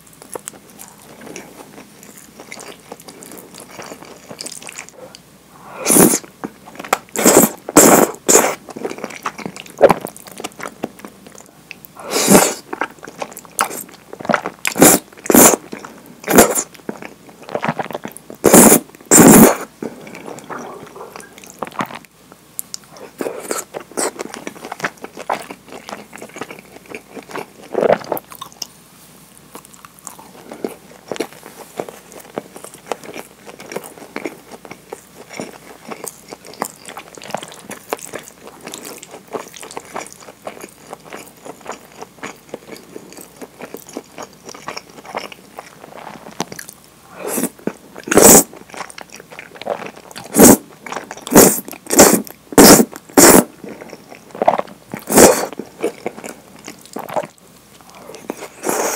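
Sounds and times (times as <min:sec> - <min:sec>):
chewing and wet mouth sounds: 0:00.2 - 0:05.3, 0:06.0 - 0:28.8, 0:29.4 - 0:58.9
loud noodle slurps: 0:05.8 - 0:06.2, 0:07.2 - 0:08.6, 0:12.1 - 0:12.6, 0:14.8 - 0:15.6, 0:18.4 - 0:19.7, 0:47.2 - 0:48.5, 0:50.3 - 0:50.6, 0:51.3 - 0:53.5, 0:55.0 - 0:55.6, 0:58.6 - 0:58.9.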